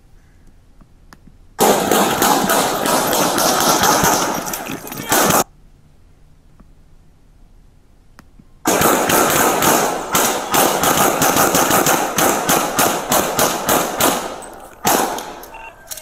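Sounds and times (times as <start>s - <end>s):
rapid handgun fire: 1.6s - 5.5s, 8.7s - 15.6s.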